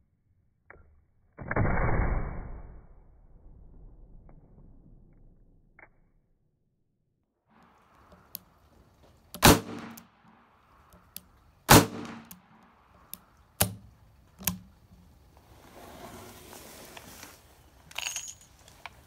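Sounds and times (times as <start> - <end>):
revolver shots echoing: 9.4 - 10.1, 11.7 - 12.5
quieter sharp gun reports: 9.4 - 10.2, 11.7 - 12.6.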